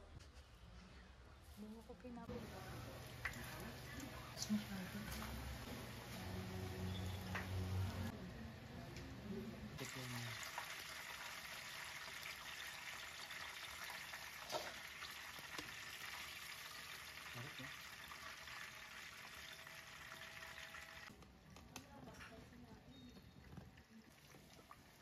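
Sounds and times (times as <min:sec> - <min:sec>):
chicken deep-frying in oil: 0:09.8 - 0:21.1.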